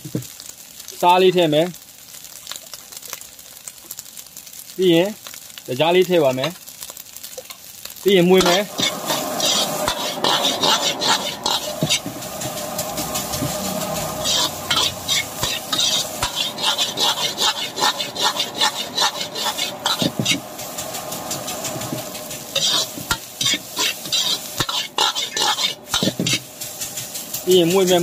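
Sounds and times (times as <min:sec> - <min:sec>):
rice sizzling in a pan: 0:00.0 - 0:28.0
metal ladle scraping a wok: 0:08.4 - 0:28.0.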